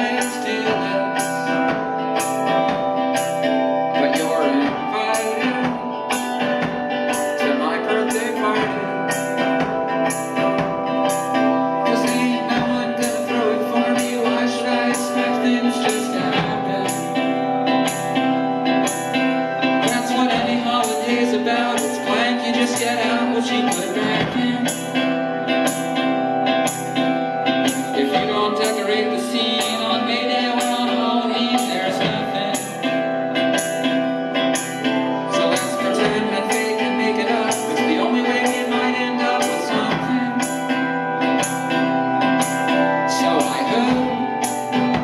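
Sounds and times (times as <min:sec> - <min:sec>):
electric guitar: 0:00.0 - 0:45.0
keyboard: 0:00.0 - 0:45.0
person singing: 0:00.0 - 0:45.0
drums beating: 0:01.6 - 0:07.4, 0:08.6 - 0:11.5.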